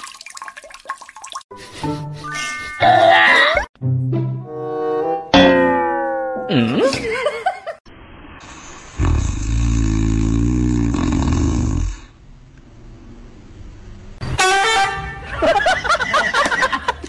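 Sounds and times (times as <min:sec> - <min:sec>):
dog snoring: 0:09.0 - 0:12.1.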